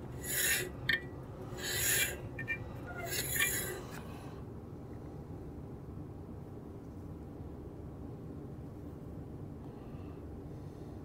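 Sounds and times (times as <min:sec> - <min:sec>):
bandsaw blade rasping: 0:00.0 - 0:04.0.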